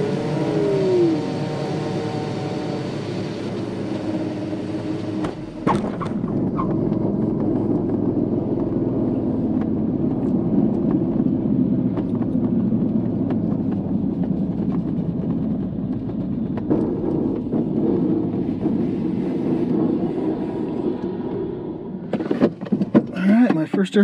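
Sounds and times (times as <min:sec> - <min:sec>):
glider rolling on runway: 0:00.0 - 0:24.0.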